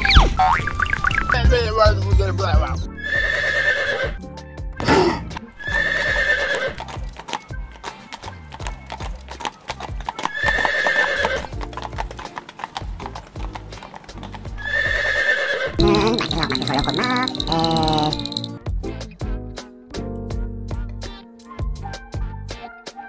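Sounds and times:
background music: 0.0s - 23.0s
horse whinnying: 2.9s - 4.2s, 5.6s - 6.9s, 10.1s - 12.9s, 14.5s - 16.4s
horse hoofbeats clip-clopping: 5.6s - 18.6s.

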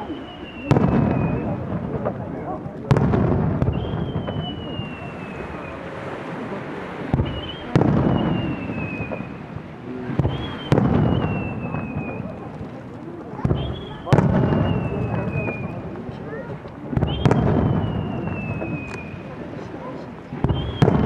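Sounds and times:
whistling firework shells: 0.0s - 2.2s, 3.0s - 6.0s, 7.1s - 9.5s, 10.2s - 12.6s, 13.4s - 16.0s, 16.9s - 19.4s, 20.4s - 21.0s
booming firework bursts: 0.0s - 21.0s.

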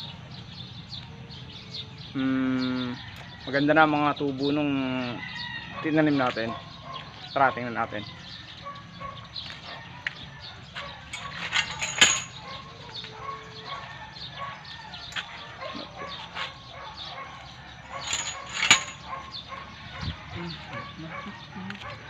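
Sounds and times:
birds chirping: 0.0s - 22.0s.

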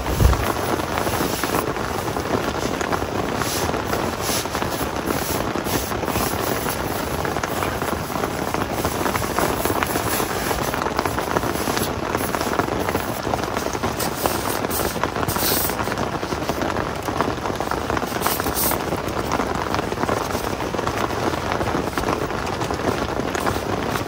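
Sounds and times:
foam sleeping pad rustling: 0.0s - 24.0s
heavy rain drumming on tent: 0.0s - 24.0s.

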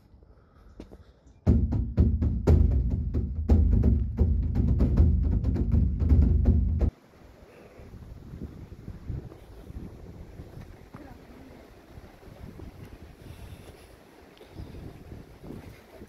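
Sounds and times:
music with strong bass: 1.5s - 6.9s
sharp percussive strikes: 1.5s - 6.9s.

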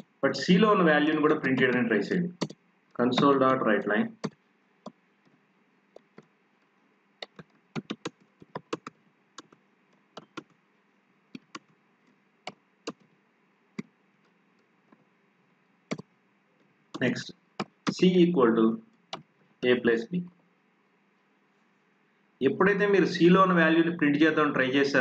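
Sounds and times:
computer keyboard typing: 1.4s - 2.6s, 4.2s - 4.4s, 7.2s - 9.6s, 10.2s - 10.6s, 11.4s - 11.7s, 12.5s - 13.1s, 15.9s - 16.1s, 17.0s - 18.0s.

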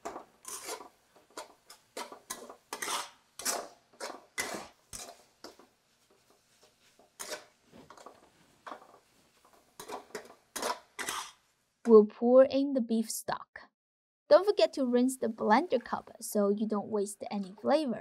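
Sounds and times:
metal spatula scraping a wok: 0.0s - 5.7s, 6.3s - 11.4s.

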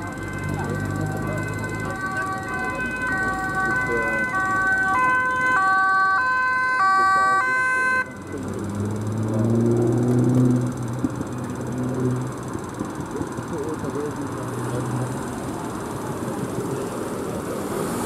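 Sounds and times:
van engine running: 0.0s - 6.2s, 8.0s - 18.0s
two-tone siren: 0.0s - 9.0s.

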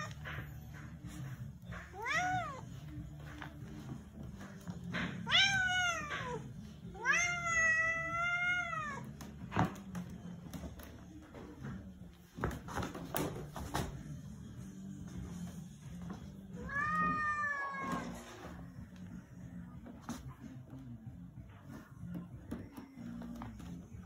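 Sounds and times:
cat meowing: 1.8s - 2.7s, 5.2s - 9.1s, 16.6s - 18.4s.

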